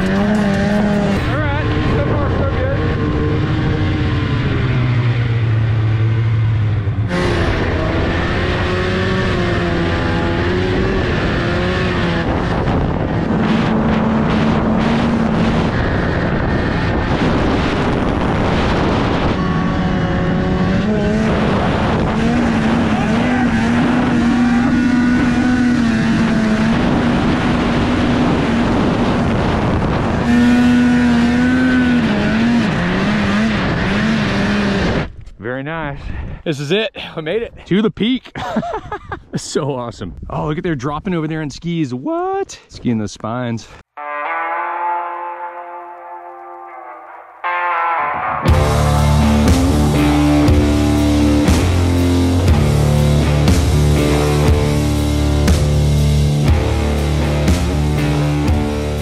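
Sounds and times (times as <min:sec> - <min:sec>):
snowmobile engine revving: 0:00.0 - 0:35.1, 0:48.3 - 0:59.0.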